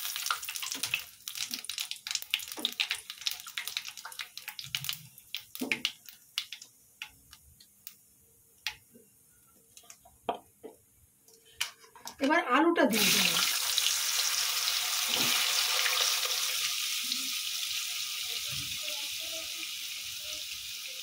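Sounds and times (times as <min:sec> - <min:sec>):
spices sizzling in hot oil: 0:00.0 - 0:08.0, 0:12.9 - 0:21.0.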